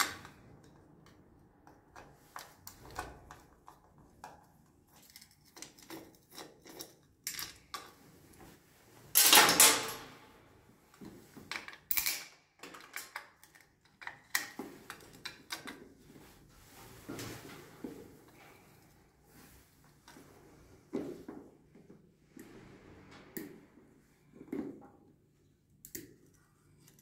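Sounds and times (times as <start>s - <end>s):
tools clattering: 9.1s - 10.2s.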